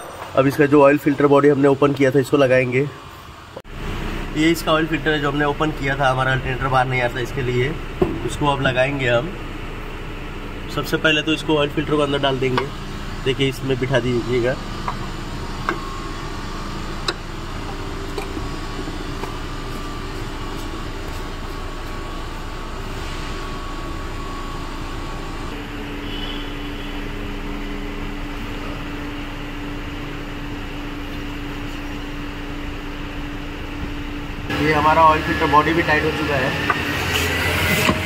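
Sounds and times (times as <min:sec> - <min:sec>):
mechanical hum: 0:00.0 - 0:38.0.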